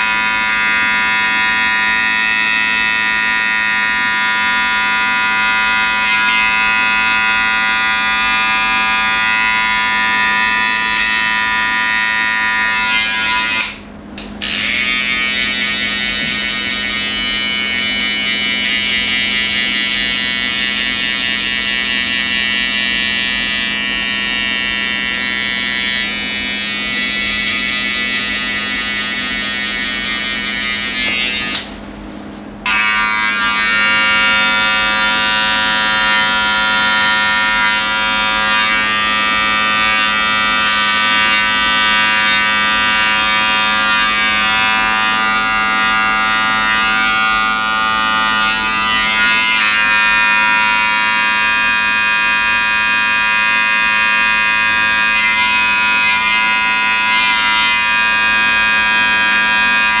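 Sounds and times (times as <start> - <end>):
electric hair clippers buzzing: 0.0 - 31.9, 32.6 - 60.0.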